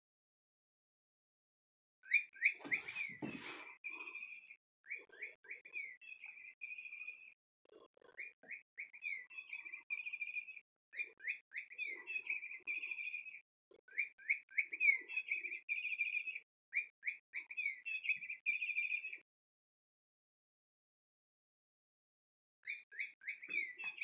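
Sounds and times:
electronic bird chirps and trill: 3.8s - 19.2s.

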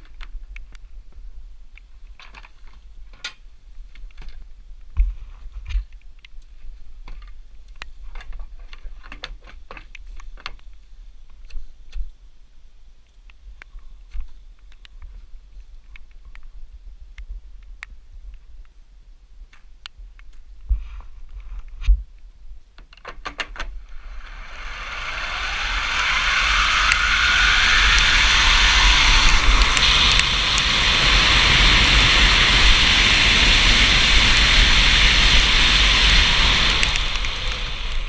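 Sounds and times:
wind on microphone: 23.8s - 38.0s.

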